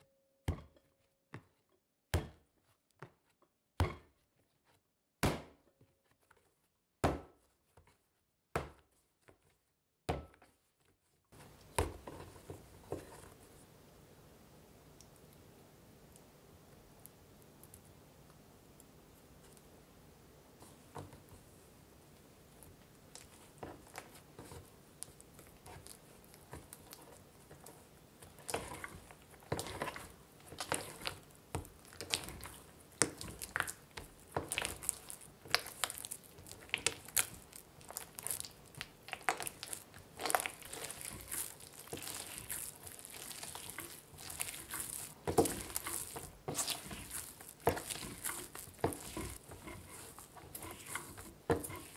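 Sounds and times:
dough squishing and tearing: 22.5 - 51.9.

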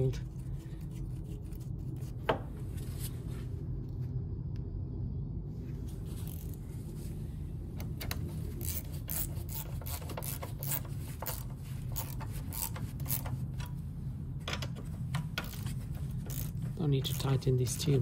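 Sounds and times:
steady low hum: 0.0 - 18.0
ratchet wrench clicking: 8.6 - 13.7, 15.1 - 17.9.

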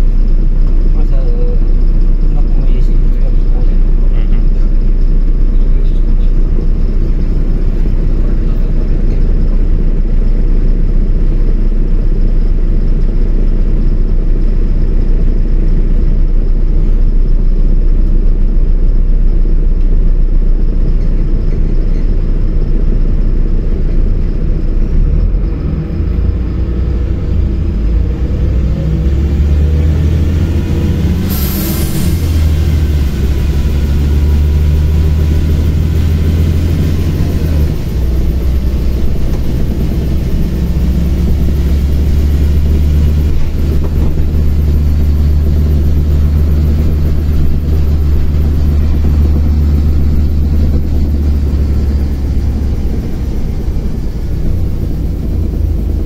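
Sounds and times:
bus diesel engine drone: 0.0 - 56.0
brief air hiss: 31.3 - 32.4.

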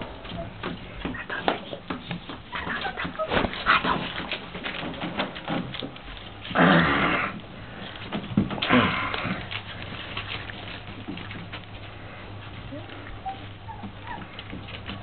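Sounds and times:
puppy paws and claws tapping: 0.0 - 6.6, 7.3 - 15.0
puppies making noisy bursts: 6.5 - 7.8, 13.2 - 15.0.

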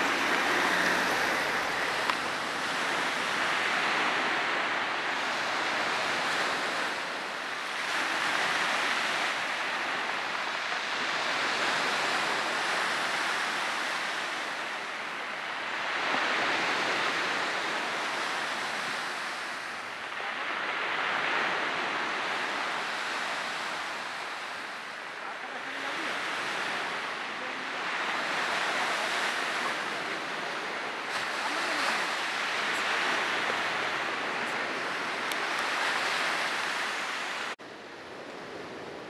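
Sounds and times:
surf breaking on rocks: 0.0 - 4.5.

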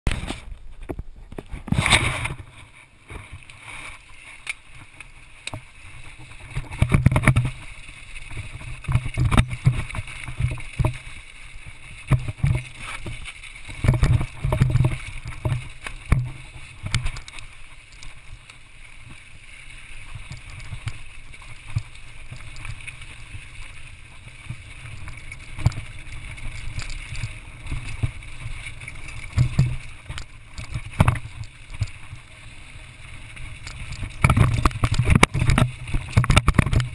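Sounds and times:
wind: 0.0 - 36.9
tyres rumbling on rough ground: 0.1 - 36.9
bike thumps and rattling knocks: 12.0 - 17.4.

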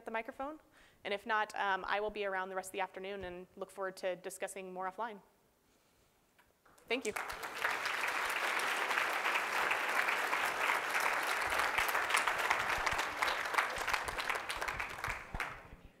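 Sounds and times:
audience applauding: 7.0 - 15.8.

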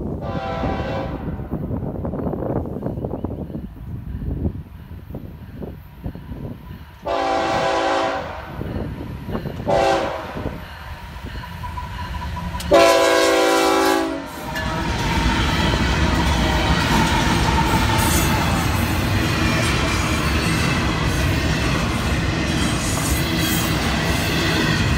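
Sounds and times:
diesel engines and wheels on rail: 0.0 - 24.9
locomotive air horn blasts: 0.2 - 1.4, 7.0 - 8.6, 9.6 - 10.6, 12.7 - 14.6.

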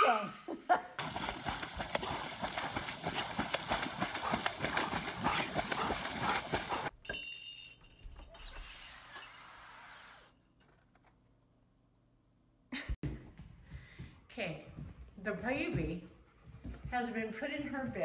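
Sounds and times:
dog splashing through water: 1.0 - 6.9.

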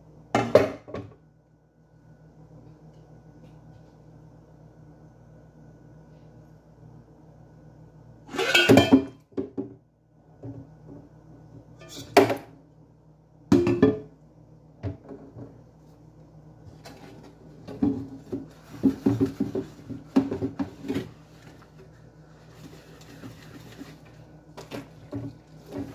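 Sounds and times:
metal pots clanking: 8.3 - 9.1.

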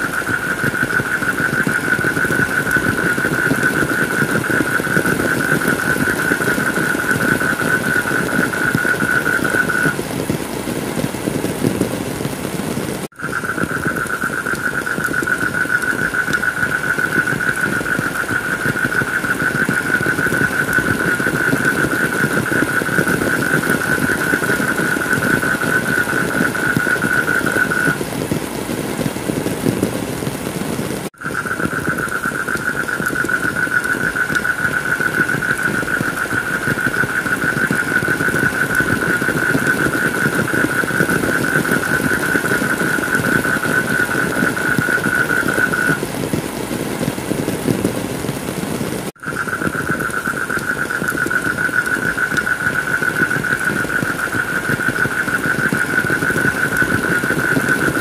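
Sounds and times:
heavy rain: 0.0 - 58.0.

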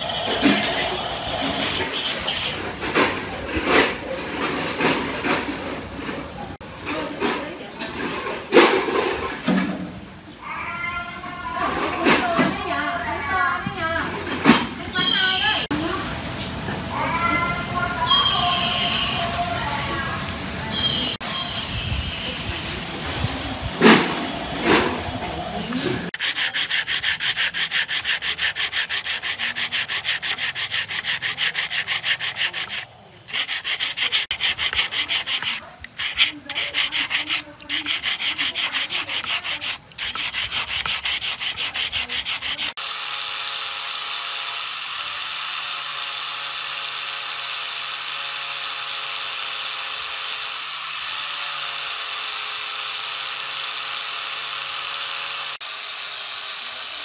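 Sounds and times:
angle grinder grinding: 0.0 - 4.0, 23.0 - 57.0
sandpaper scraping on metal: 0.0 - 5.9, 20.8 - 55.6.

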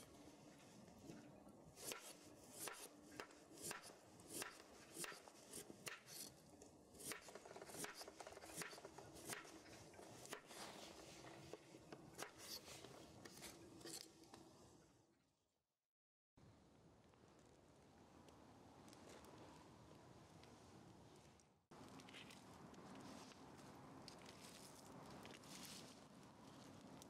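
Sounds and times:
knife cutting on wooden board: 1.8 - 6.4, 7.0 - 11.0.

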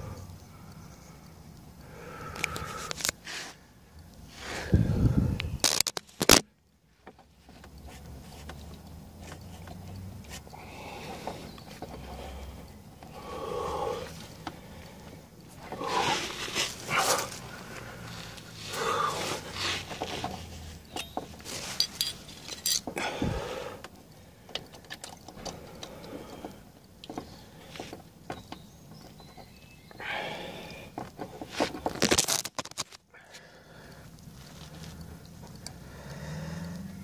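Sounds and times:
hands clicking and scraping on plastic: 5.4 - 6.5, 30.9 - 33.1.

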